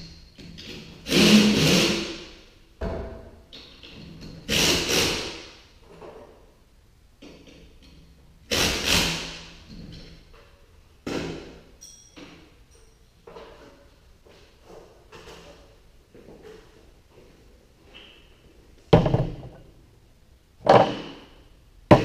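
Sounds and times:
knocks on steel garage door: 0:18.9 - 0:19.6.

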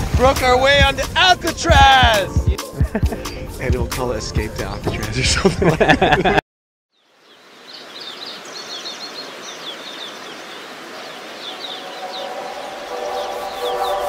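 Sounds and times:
birds chirping: 0:06.9 - 0:14.0
steady outdoor noise: 0:07.0 - 0:14.0.

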